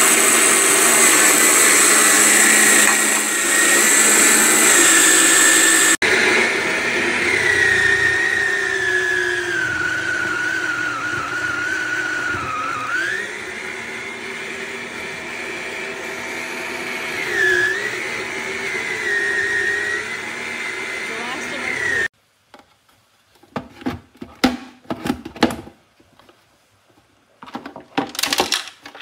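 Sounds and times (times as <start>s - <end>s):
fruit dessert maker motor whine: 0.0s - 22.1s.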